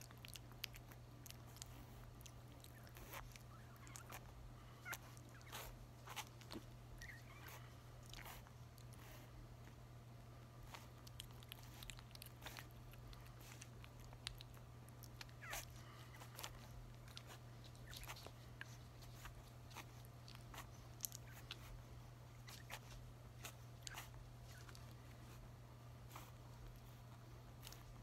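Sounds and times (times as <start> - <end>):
puppy licking and smacking food: 0.0 - 9.8, 10.5 - 28.0
puppy squeak: 7.0 - 7.6.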